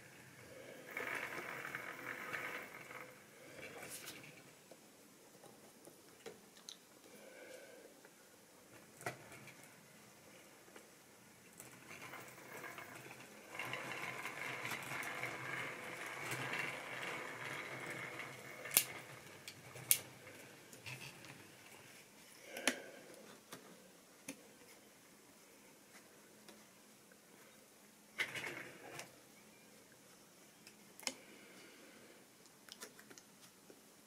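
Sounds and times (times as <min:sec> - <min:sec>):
model train whirring: 0:00.0 - 0:04.5, 0:11.5 - 0:22.0, 0:28.2 - 0:29.1.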